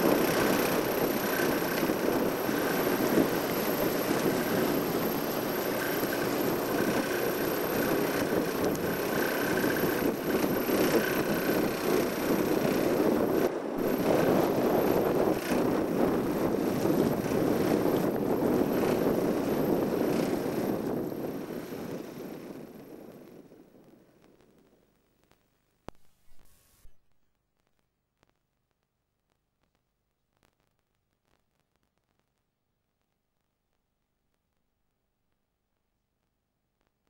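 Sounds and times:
strong wind on microphone: 0.0 - 24.0.

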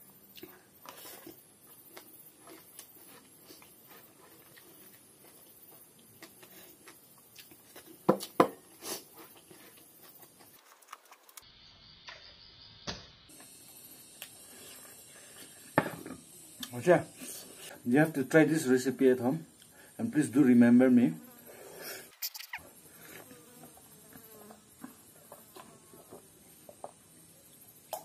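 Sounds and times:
person chewing: 0.3 - 11.4.

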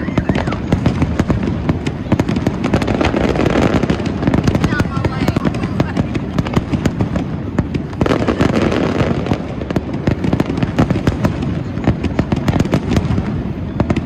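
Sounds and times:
fireworks bangs and crackles: 0.0 - 14.0.

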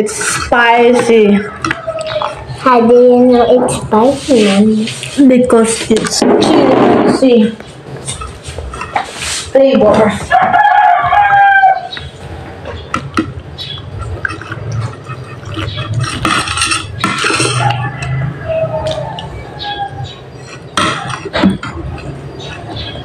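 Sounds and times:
fork and spoon scraping plate: 8.0 - 9.5, 12.7 - 18.3, 19.6 - 23.0.

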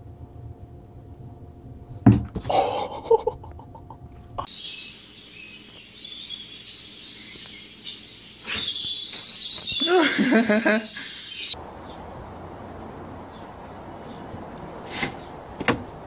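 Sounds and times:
high chirping and twittering: 4.4 - 12.0.

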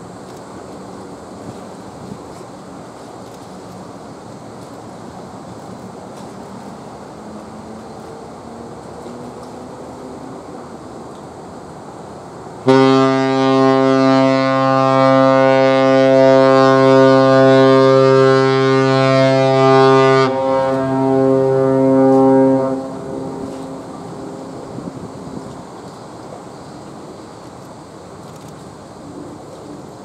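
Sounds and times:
ship's whistle long low blast: 12.6 - 25.0.

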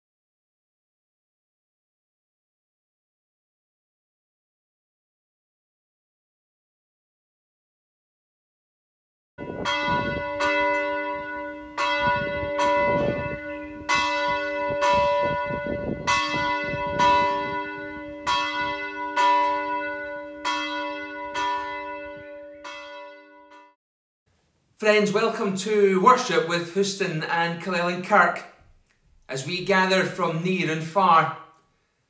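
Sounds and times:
church bell tolling: 9.4 - 23.8.

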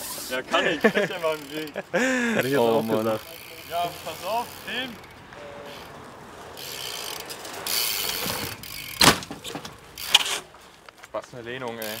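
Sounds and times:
bike freewheel ratchet clicking: 0.0 - 5.9, 6.5 - 9.1, 9.9 - 10.4, 11.6 - 12.0
bike landing impact: 6.6 - 10.7.

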